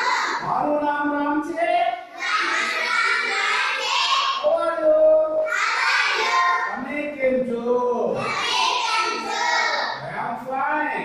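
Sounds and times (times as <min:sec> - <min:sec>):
children chanting in unison: 0:00.0 - 0:00.5, 0:02.1 - 0:04.5, 0:05.4 - 0:06.8, 0:08.1 - 0:10.0.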